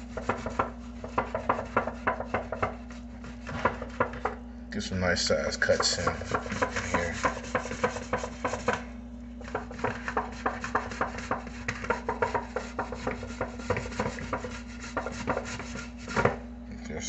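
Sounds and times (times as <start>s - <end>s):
potato rasping on metal grater: 5.9s - 8.7s, 9.4s - 16.3s.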